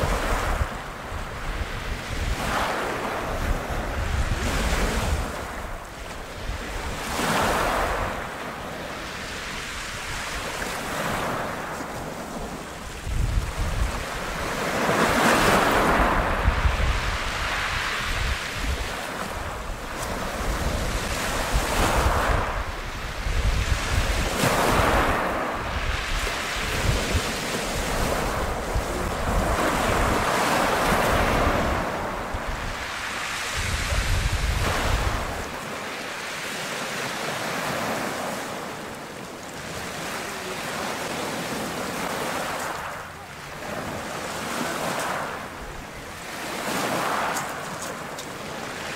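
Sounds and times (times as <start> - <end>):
wind buffeting microphone: 0.0 - 8.4, 9.0 - 35.7
sea waves breaking: 0.0 - 48.9.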